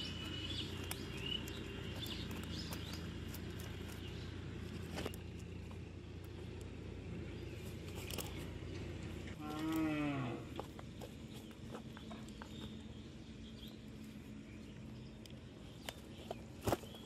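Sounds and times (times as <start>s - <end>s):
steady low hum: 0.0s - 17.0s
cow mooing: 9.4s - 10.6s.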